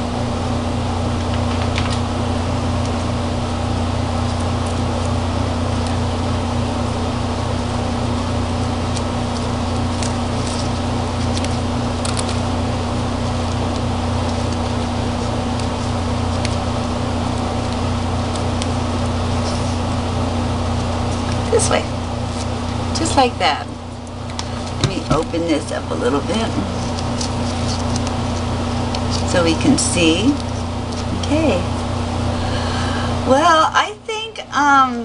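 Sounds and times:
low hum: 0:00.0 - 0:35.0
paper handling clicks and taps: 0:01.2 - 0:02.0, 0:08.9 - 0:12.4, 0:13.2 - 0:16.6, 0:26.8 - 0:29.3.

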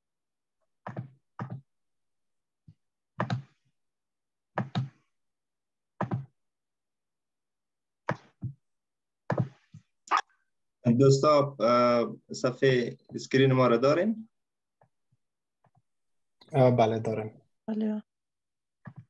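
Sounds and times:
short knocks or thuds: 0:06.0 - 0:06.3.

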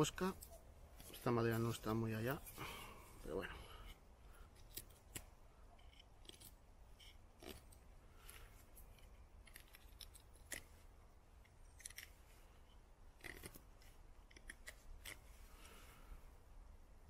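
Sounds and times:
knife scraping wooden stick: 0:03.8 - 0:10.8, 0:11.4 - 0:15.6.

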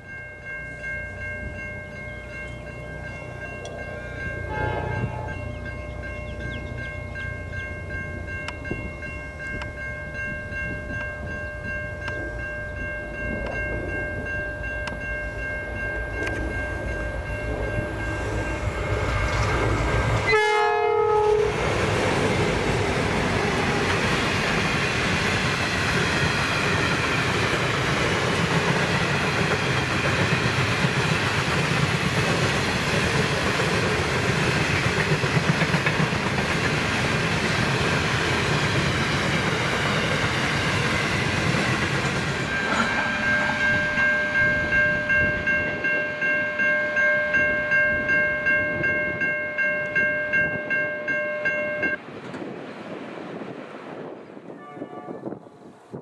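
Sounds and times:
pulsing high ringing: 0:00.0 - 0:21.5, 0:38.9 - 0:52.0
train wagons rumbling past: 0:00.0 - 0:56.0
locomotive horn: 0:03.6 - 0:05.6, 0:20.2 - 0:21.6, 0:54.5 - 0:55.6.

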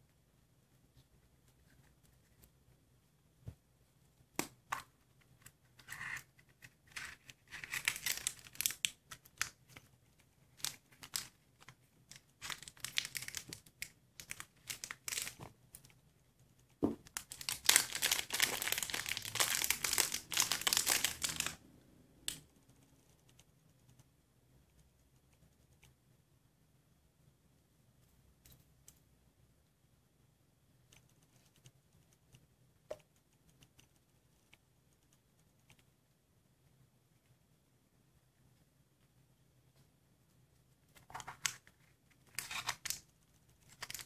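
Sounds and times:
plastic bag crinkling: 0:12.4 - 0:13.6, 0:17.2 - 0:21.6
plastic bag tearing: 0:17.3 - 0:21.6.

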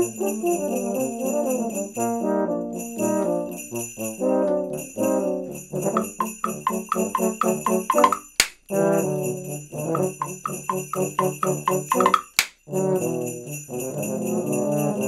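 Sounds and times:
shaken sleigh bells: 0:02.9 - 0:15.0
euphoniums playing a tune: 0:06.0 - 0:08.5, 0:10.0 - 0:12.5
temple blocks clip-clopping: 0:06.0 - 0:08.5, 0:10.0 - 0:12.5.

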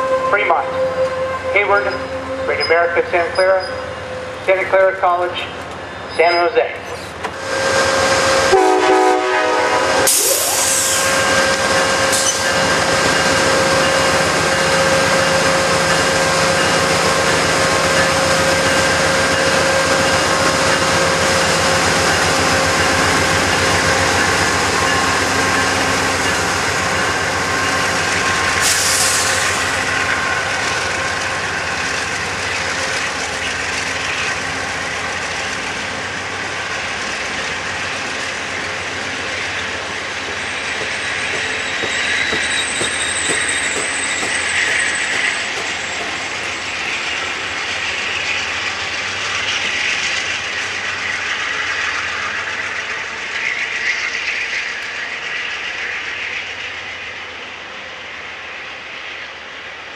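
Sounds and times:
train horn blast: 0:00.0 - 0:04.4, 0:07.5 - 0:10.4
locomotive engine drone: 0:00.0 - 0:59.9
train wheels on rails: 0:02.6 - 0:59.9
air hissing: 0:10.1 - 0:11.1, 0:28.6 - 0:29.6.

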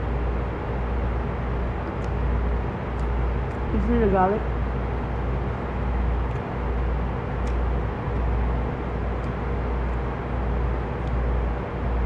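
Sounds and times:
low rumble and hiss: 0:00.0 - 0:12.0.

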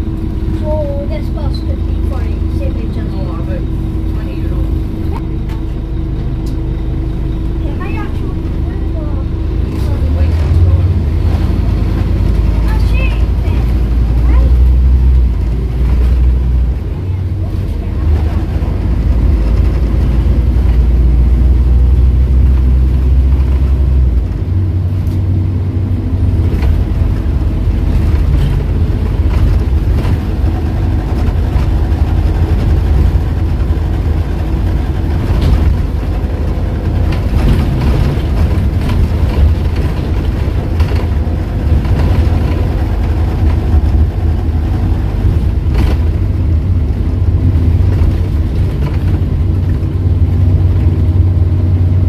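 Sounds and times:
bus body rattles: 0:00.0 - 0:52.0
bus engine rumbling: 0:00.0 - 0:52.0.

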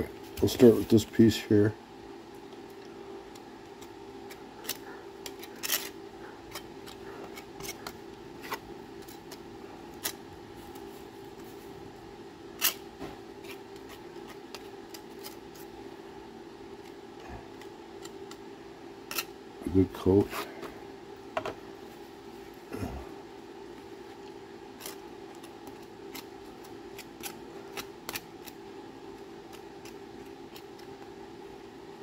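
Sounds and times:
steady background hum: 0:00.0 - 0:32.0
putty knife scraping: 0:04.3 - 0:09.4.

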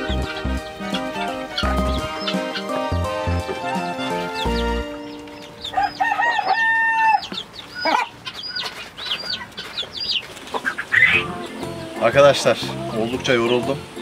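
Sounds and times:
lower chicken call: 0:00.0 - 0:08.7
chicks peeping: 0:00.0 - 0:14.0.

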